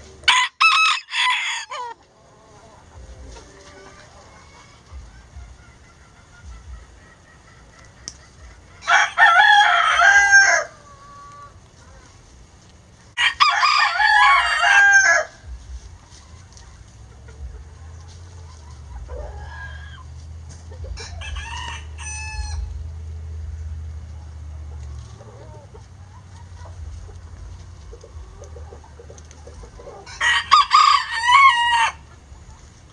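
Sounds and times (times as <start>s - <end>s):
rooster crowing: 0.2s - 5.5s, 8.8s - 11.6s, 13.2s - 15.5s, 19.0s - 20.1s, 20.9s - 22.8s, 29.8s - 32.1s.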